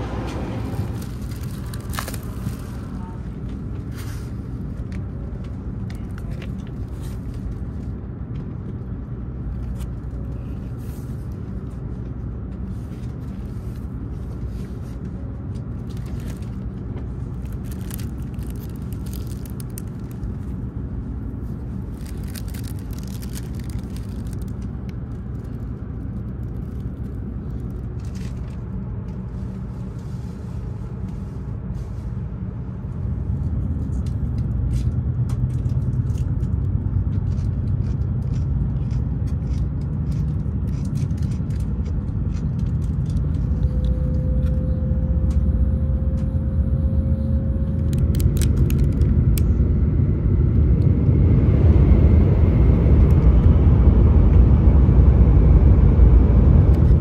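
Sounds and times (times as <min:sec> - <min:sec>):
train cabin rumble: 0:00.0 - 0:35.8
plastic wrapping crinkling: 0:00.7 - 0:03.1, 0:15.8 - 0:20.7, 0:21.4 - 0:28.6, 0:47.9 - 0:49.0.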